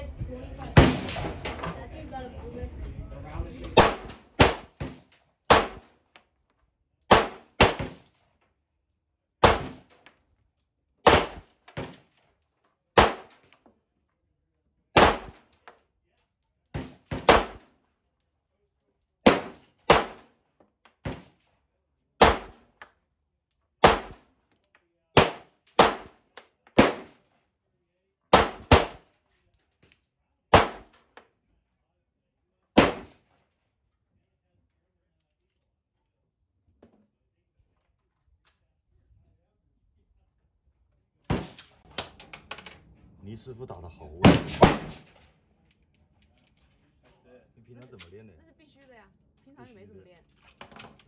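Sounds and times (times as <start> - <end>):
pistol shots: 3.8 - 5.9, 7.1 - 8.1, 9.4 - 9.9, 11.0 - 12.0, 13.0 - 13.4, 15.0 - 15.5, 16.8 - 17.7, 19.2 - 20.3, 22.2 - 22.7, 23.8 - 24.2, 25.2 - 26.2, 26.8 - 27.2, 28.3 - 29.0, 30.5 - 31.0, 32.8 - 33.2, 44.2 - 45.2.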